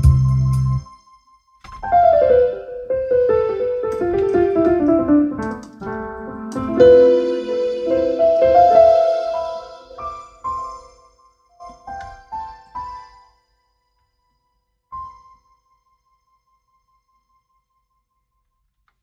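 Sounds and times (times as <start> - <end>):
portable keyboard notes and chord: 0.0 - 13.5.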